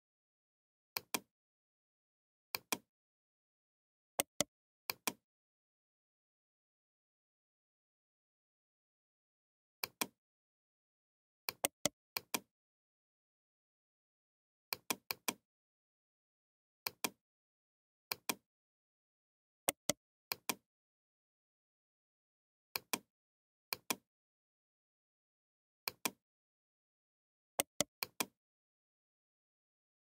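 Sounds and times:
computer mouse clicks: 1.0 - 1.3, 4.2 - 5.2, 11.5 - 12.5, 14.7 - 15.4, 27.6 - 28.3.

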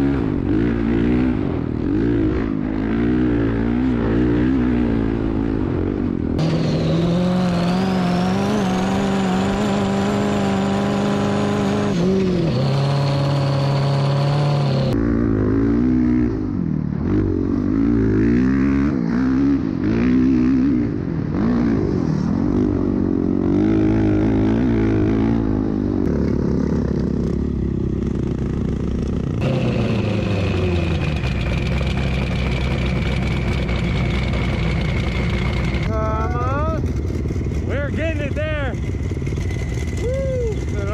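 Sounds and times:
dirt bike engine revving: 0.0 - 40.9.

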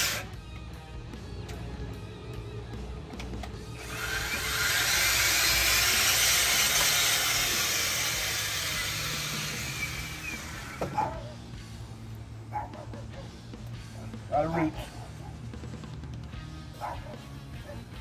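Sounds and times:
earth auger drilling into ground: 0.0 - 0.3, 3.6 - 11.0.

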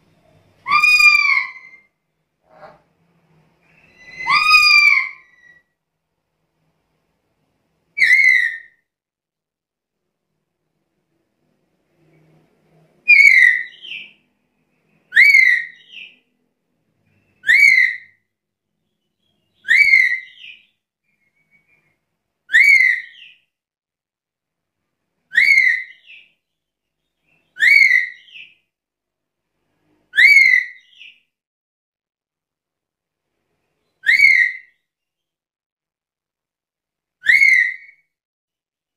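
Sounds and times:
parrot whistled call: 0.6 - 1.9, 3.7 - 5.6, 8.0 - 8.8, 13.1 - 14.1, 15.1 - 16.2, 17.4 - 18.2, 19.6 - 20.6, 22.5 - 23.4, 25.3 - 26.2, 27.6 - 28.5, 30.1 - 31.1, 34.0 - 34.8, 37.2 - 38.0.

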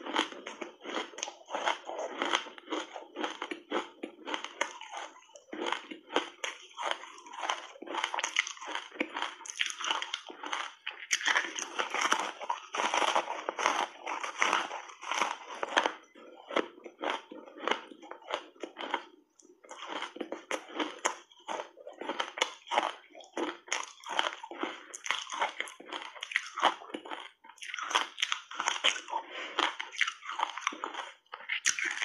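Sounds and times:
crunching and chewing ice: 0.0 - 32.0.

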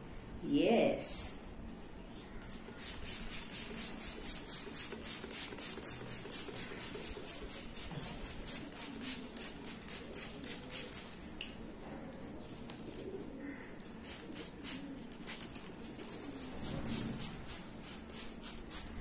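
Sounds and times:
spray bottle hissing sprays: 2.5 - 11.1, 14.0 - 19.0.

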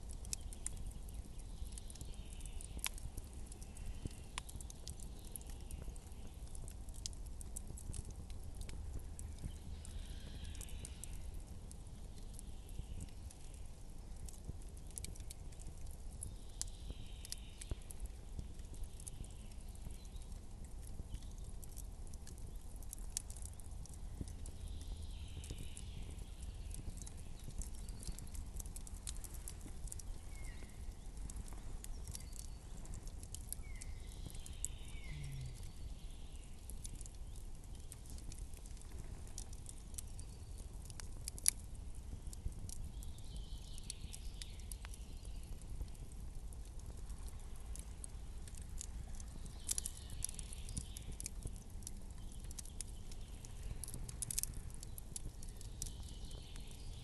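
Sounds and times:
campfire crackling and popping: 0.0 - 57.0.

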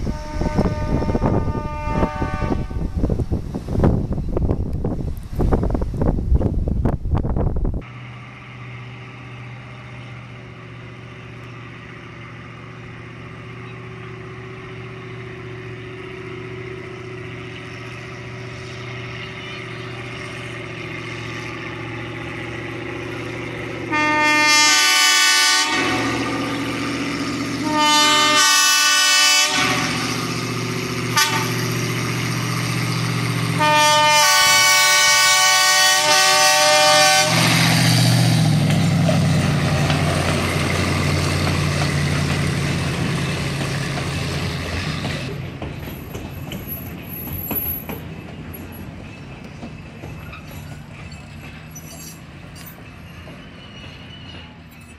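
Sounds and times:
locomotive horn blasts: 0.0 - 3.1, 23.8 - 26.7, 27.5 - 30.2, 31.1 - 31.8, 33.6 - 37.6
locomotive engine humming: 0.0 - 54.9.

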